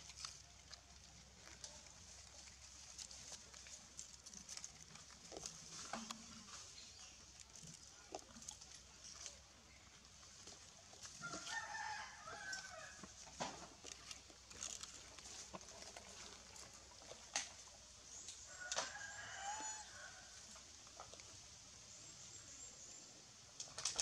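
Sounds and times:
dry leaves rustling: 0.0 - 21.2
distant rooster crowing: 11.2 - 13.1, 18.5 - 20.4.

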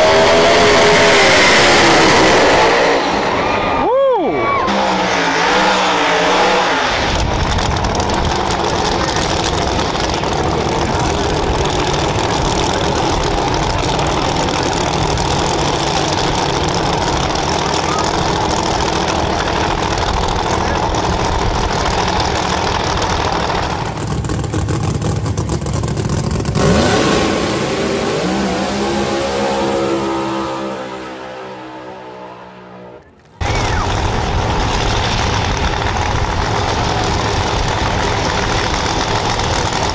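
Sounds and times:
drag car engine idling loudly: 7.1 - 29.4, 33.4 - 39.9.

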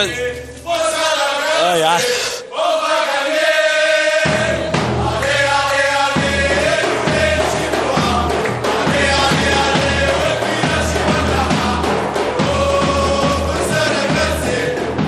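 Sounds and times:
group of voices chanting: 0.0 - 15.0
drum beat: 4.2 - 15.0.

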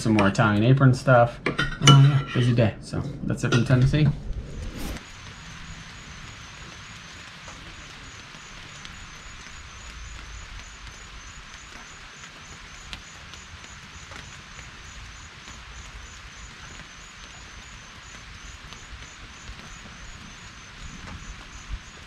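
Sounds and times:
low rumble: 2.3 - 6.6
pulsing insect call: 4.2 - 22.0
insects hissing: 4.3 - 22.0.

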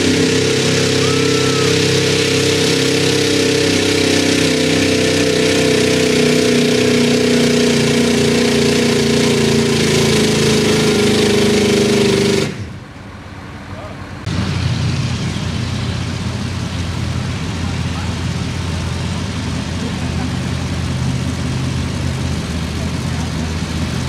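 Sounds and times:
truck engine high-revving drone: 0.0 - 12.9, 13.9 - 24.0.

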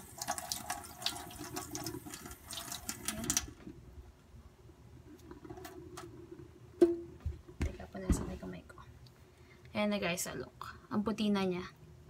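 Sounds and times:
tap water running into sink: 0.0 - 3.7
faint steady hum: 0.0 - 12.0.

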